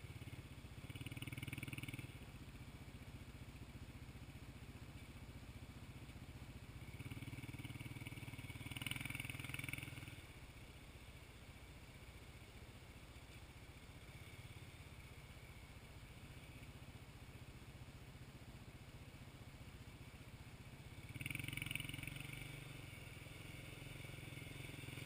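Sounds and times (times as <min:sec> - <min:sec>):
quad engine revving: 0:06.9 - 0:10.2, 0:21.0 - 0:25.0.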